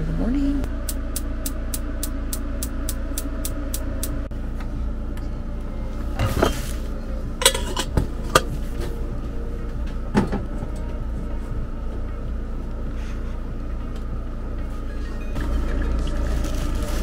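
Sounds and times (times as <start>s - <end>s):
low hum: 0.0s - 17.0s
kettle clanking on stove grate: 7.4s - 8.5s.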